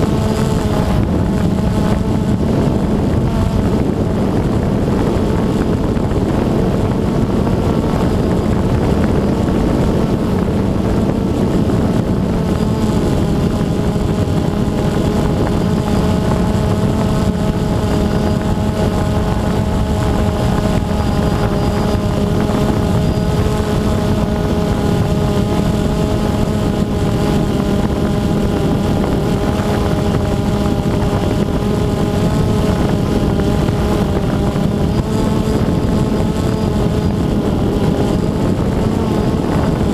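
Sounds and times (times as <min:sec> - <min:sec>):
drone propellers buzzing: 0:00.0 - 0:39.9
wind rumble: 0:00.0 - 0:39.9.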